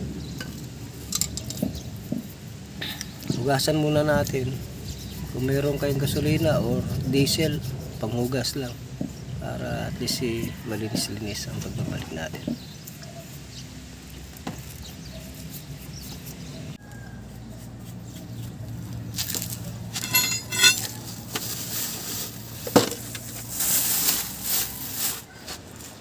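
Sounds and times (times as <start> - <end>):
metal clinks: 20.0 - 20.9.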